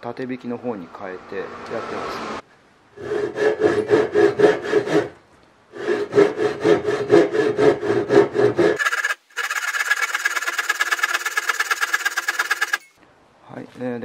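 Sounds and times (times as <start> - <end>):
hand saw cutting wood: 3.0 - 12.9.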